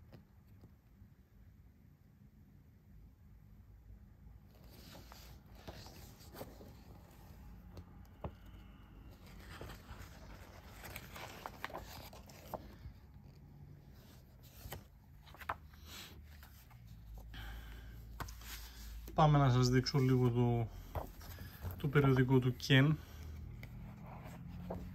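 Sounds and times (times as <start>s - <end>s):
paper magazine rustling: 4.6s - 8.4s, 9.1s - 24.9s.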